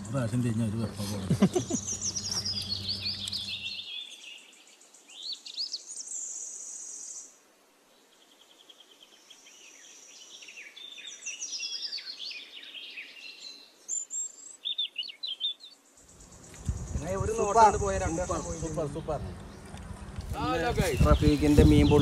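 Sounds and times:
low hum: 0.0 - 3.8, 16.1 - 21.8
birds chirping and trilling: 0.0 - 22.0.

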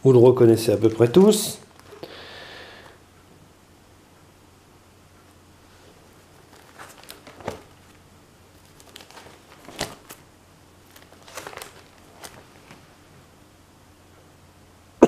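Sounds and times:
plastic sheet protectors crinkling: 0.5 - 2.9, 6.3 - 13.0.

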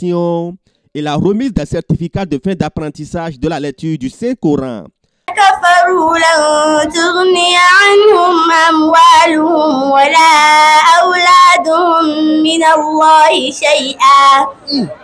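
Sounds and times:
girl chanting melodically: 5.3 - 15.0.

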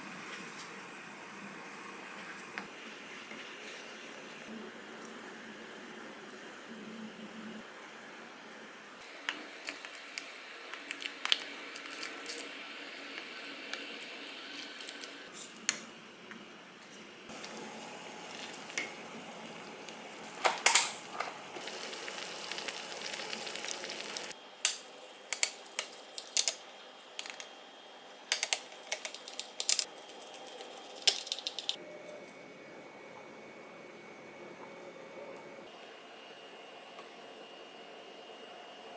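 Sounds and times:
stew bubbling and sizzling: 17.3 - 24.4
utensils clicking and tapping: 24.6 - 26.6, 28.3 - 31.8.

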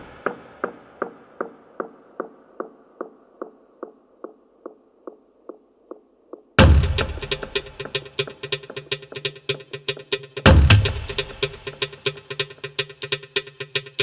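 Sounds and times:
house music click beat: 0.2 - 14.0
loud bass hit: 6.6 - 7.3.

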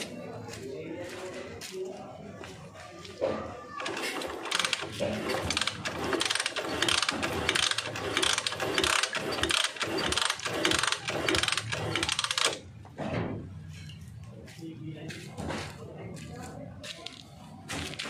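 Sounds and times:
metal ratchet clicking: 5.4 - 12.6.

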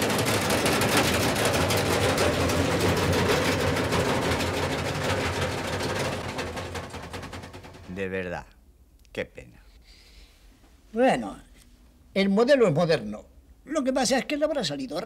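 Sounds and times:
washing machine motor hum: 0.0 - 8.4
washing machine rattling and banging: 0.0 - 8.5.

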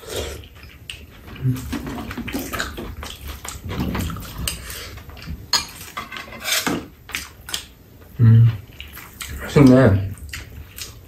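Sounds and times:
utensils clinking on ceramic bowls: 5.5 - 6.9.

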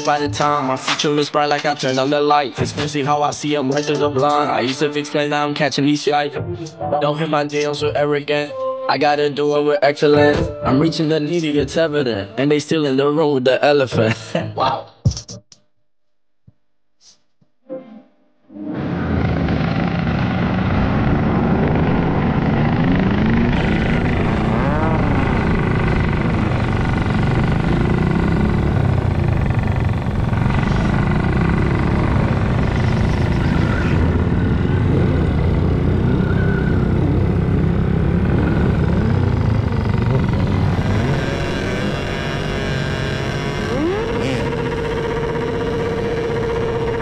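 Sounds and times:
low rumble: 18.7 - 47.0
motorcycle engine revving: 18.8 - 47.0.

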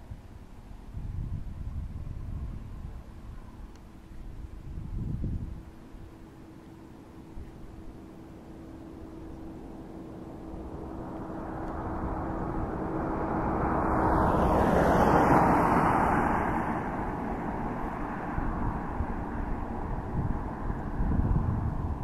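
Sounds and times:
wind rumble on microphone: 0.0 - 22.0
vehicle passing: 6.8 - 22.0.

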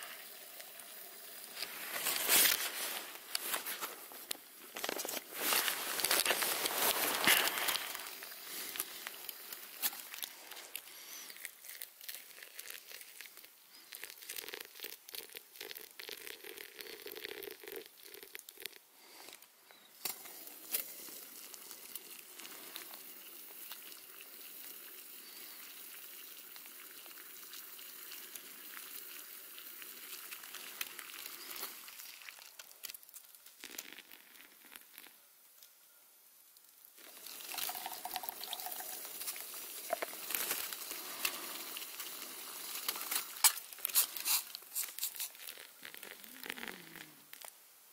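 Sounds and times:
foil crinkling: 1.6 - 13.9, 37.7 - 46.6
camp stove hissing: 37.0 - 45.4.

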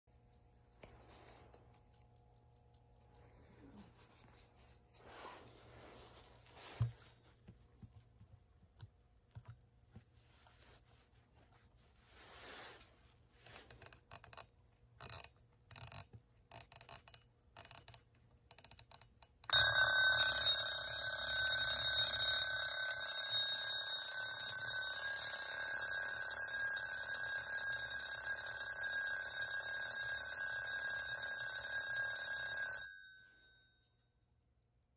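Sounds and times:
small clicks of clock handling: 0.1 - 28.9
alarm clock ringing: 19.5 - 33.7.

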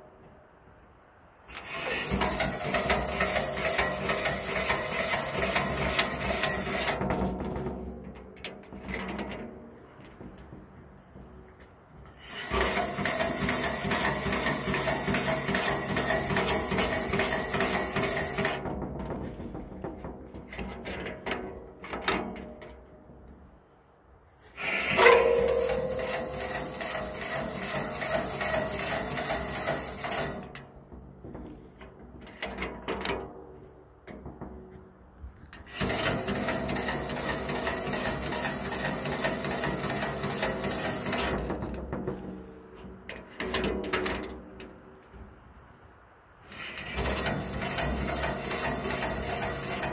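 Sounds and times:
steel being filed rasping: 1.5 - 7.0, 12.2 - 18.6, 24.6 - 30.6, 35.7 - 41.4, 46.5 - 49.9
short metallic ring: 24.6 - 30.4.

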